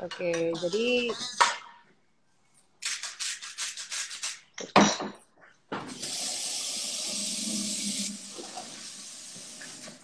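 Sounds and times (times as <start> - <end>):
tap water running: 5.8 - 10.0.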